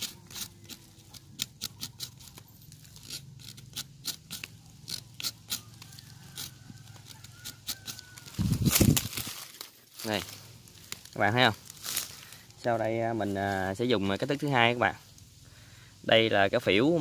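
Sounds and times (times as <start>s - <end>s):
knife scraping tree bark: 0.0s - 12.6s.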